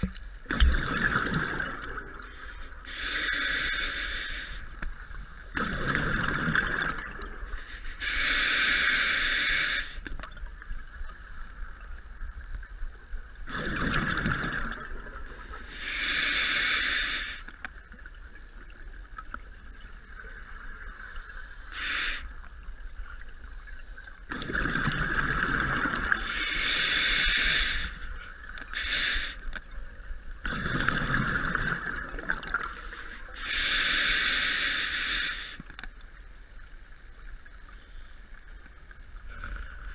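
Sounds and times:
underwater exhale bubbling: 0.0s - 3.8s, 5.5s - 9.8s, 13.5s - 16.8s, 24.3s - 28.0s, 30.4s - 35.5s
diver breathing through regulator: 2.2s - 5.1s, 7.5s - 10.0s, 15.5s - 17.5s, 21.2s - 22.3s, 26.1s - 29.6s, 32.6s - 35.6s.

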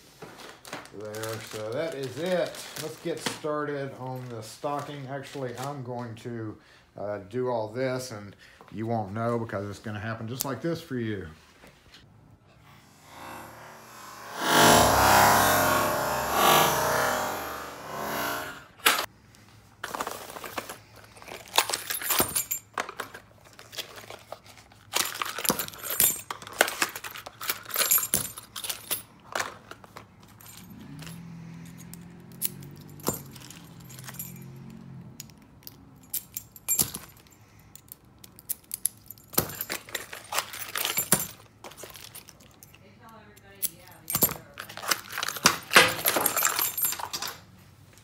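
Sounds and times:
plastic bags and boxes rustling: 0.0s - 6.3s, 19.4s - 31.9s, 38.9s - 48.0s
keys jangling and clinking: 21.0s - 47.6s.

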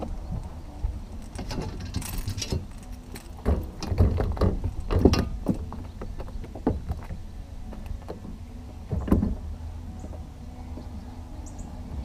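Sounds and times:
knocks and rattles on boat deck: 1.4s - 10.2s.

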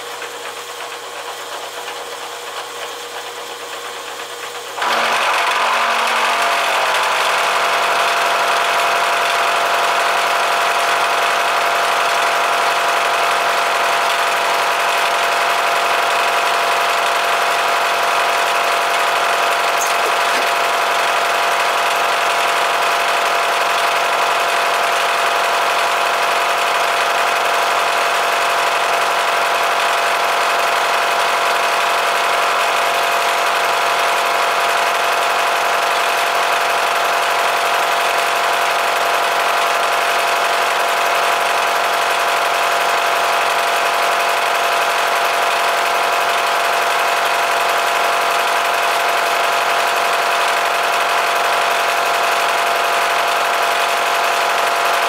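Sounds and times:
cutter hissing through steel: 19.8s - 20.7s.

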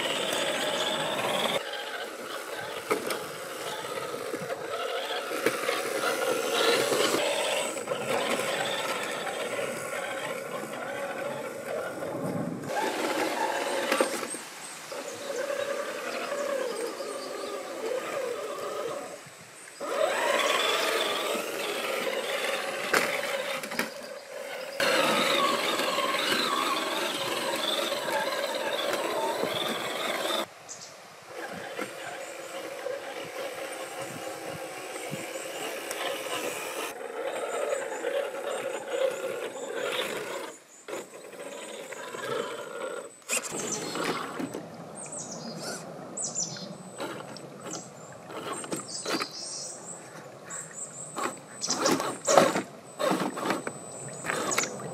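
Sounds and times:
electric motor whine: 0.0s - 19.2s, 19.8s - 30.5s, 31.3s - 44.7s, 50.6s - 54.9s
knocks and scrapes on rock: 51.2s - 54.7s.

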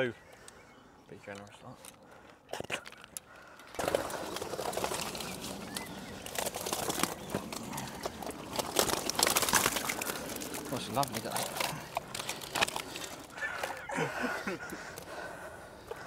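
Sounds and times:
fish flapping and splashing: 2.6s - 15.3s.

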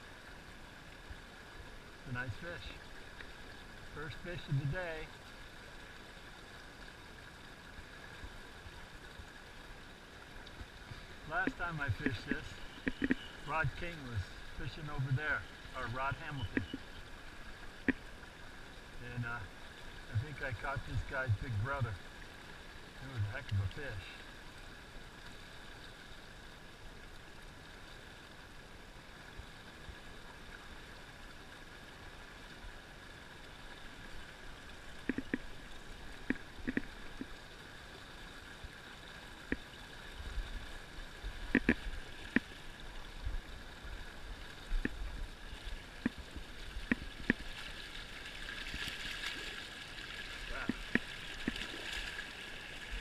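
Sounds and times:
fast river current rushing: 0.0s - 53.0s
sharp clicks and knocks: 12.8s - 13.2s, 35.1s - 35.5s, 41.5s - 42.5s.

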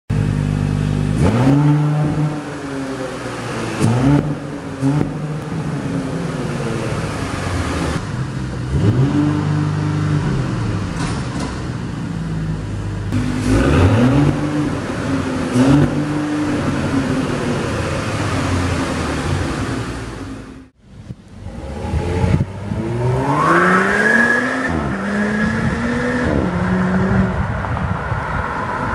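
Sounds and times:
car engine idling and revving: 0.1s - 28.9s.

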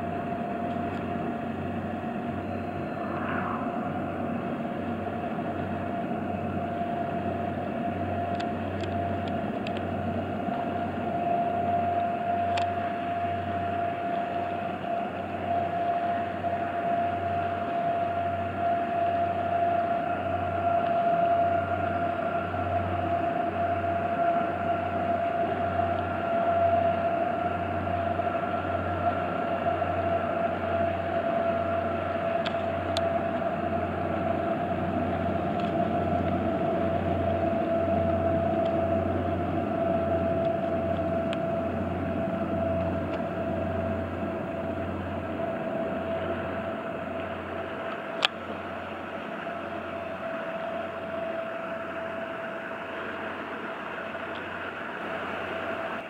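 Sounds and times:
ferry engine drone: 0.0s - 56.0s.

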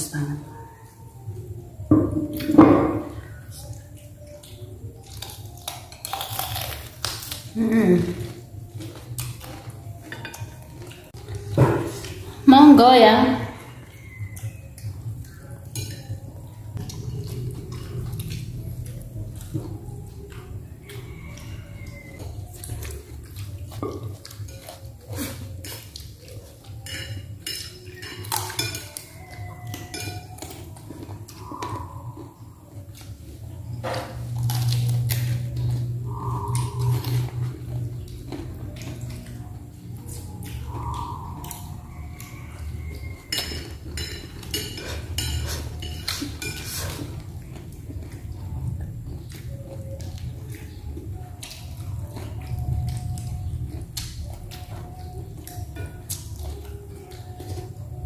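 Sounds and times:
cutlery clinking on ceramic plates: 15.6s - 16.9s, 23.7s - 31.8s, 42.3s - 48.2s
steady low hum: 30.7s - 58.0s.

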